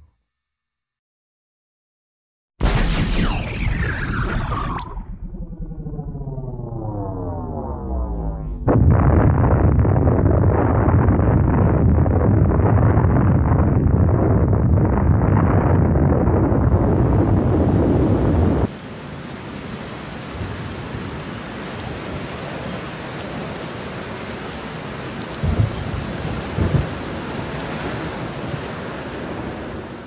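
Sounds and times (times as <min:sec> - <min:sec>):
thunder rolls: 0:02.6 - 0:18.8, 0:24.6 - 0:30.0
thunder rumbling: 0:02.7 - 0:30.0
rain hiss: 0:16.6 - 0:30.0.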